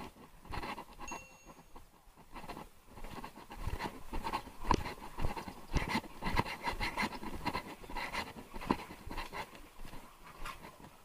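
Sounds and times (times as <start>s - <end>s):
brief high tone: 1.1s - 1.8s.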